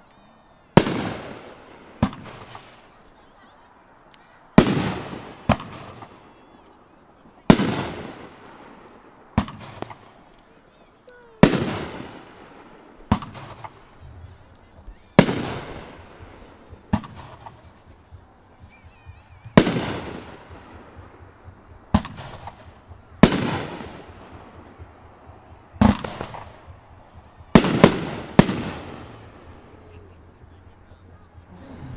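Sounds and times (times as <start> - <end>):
firework bangs: 0.8 - 3.1, 4.6 - 10.3, 11.3 - 18.2, 19.5 - 29.9.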